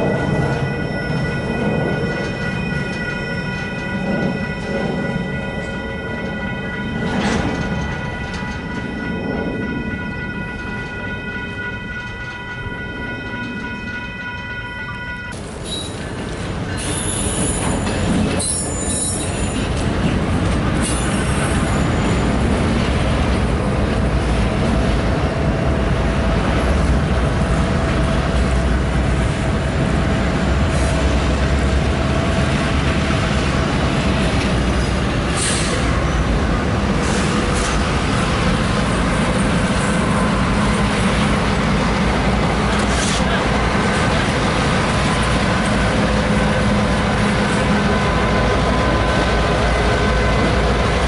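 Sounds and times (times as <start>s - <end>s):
diesel locomotive engine rumble: 0.0s - 51.0s
train wheels rolling on rails: 0.0s - 51.0s.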